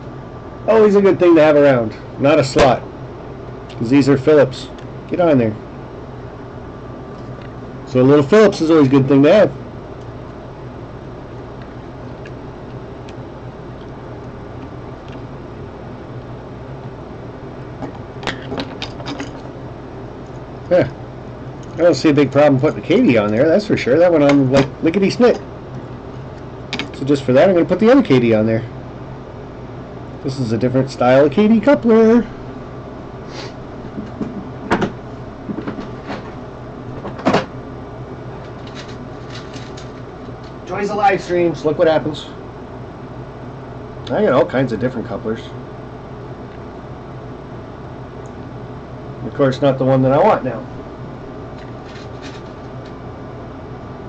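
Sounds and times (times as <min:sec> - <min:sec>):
low room hum: 0:00.0 - 0:54.0.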